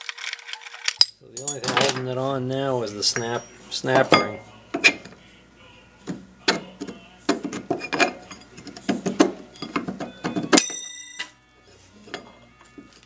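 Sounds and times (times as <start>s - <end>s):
metal parts clinking and knocking: 0.0s - 2.1s.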